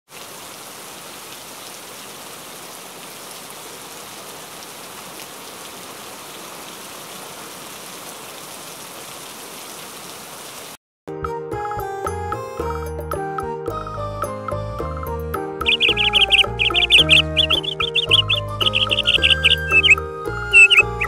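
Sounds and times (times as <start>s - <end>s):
steady rain falling: 0.1s - 10.8s, 15.6s - 21.0s.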